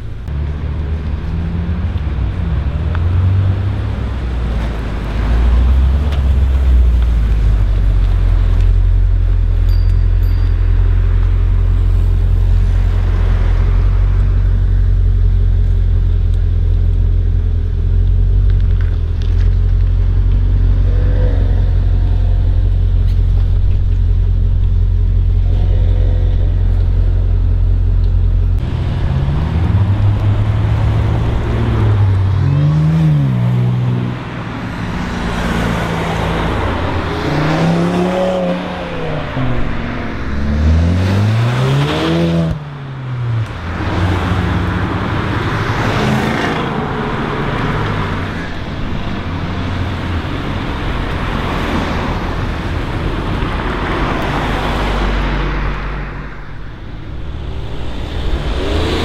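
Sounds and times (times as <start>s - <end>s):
deep steady rumble: 0.0s - 37.2s, 46.6s - 59.0s
cars accelerating away: 25.2s - 59.0s.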